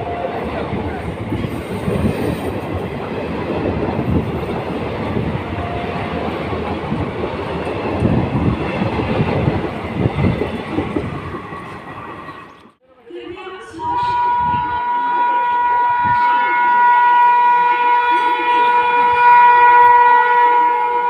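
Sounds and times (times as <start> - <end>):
train wheels rumbling on rails: 0.0 - 12.8.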